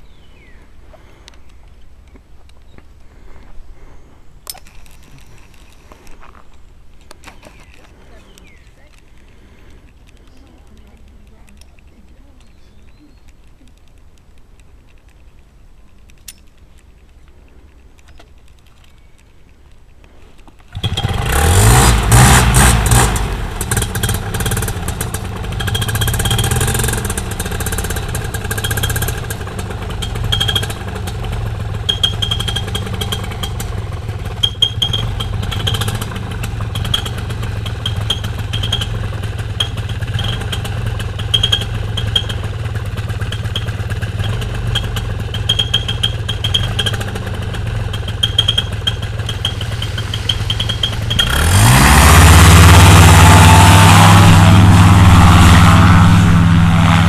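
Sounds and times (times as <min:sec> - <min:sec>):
paramotor engine revving and running: 0:20.7 - 0:57.0.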